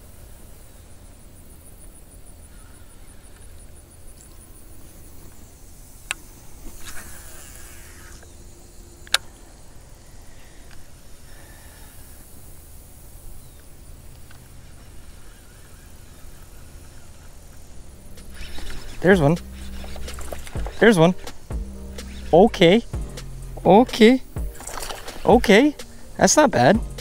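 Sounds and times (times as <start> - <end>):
fishing line whirring: 0.0 - 27.0
fishing reel ticking: 6.0 - 9.2, 10.3 - 27.0
reel sharp click: 15.0 - 22.2, 23.9 - 26.0
low steady rumble: 16.0 - 24.6.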